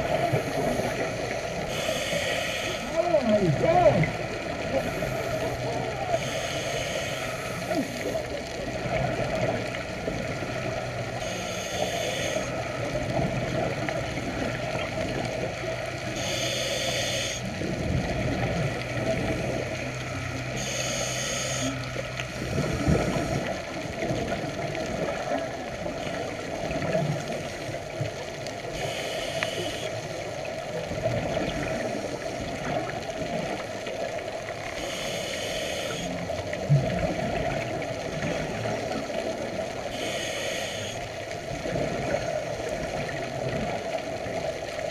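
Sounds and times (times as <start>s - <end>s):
low underwater drone: 0.0s - 44.9s
scuba regulator breaths: 0.1s - 3.0s, 4.7s - 8.3s, 11.2s - 12.6s, 16.1s - 17.5s, 20.5s - 21.9s, 28.7s - 30.0s, 34.8s - 36.2s, 39.9s - 41.1s.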